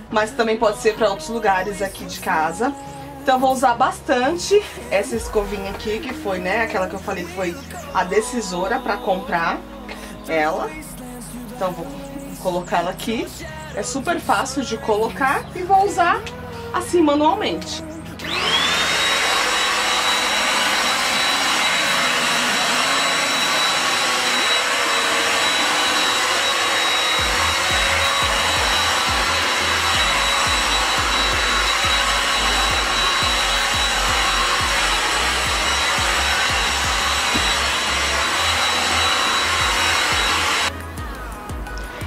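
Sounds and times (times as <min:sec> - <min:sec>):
vacuum cleaner running: 0:03.7 - 0:09.6, 0:18.2 - 0:40.8.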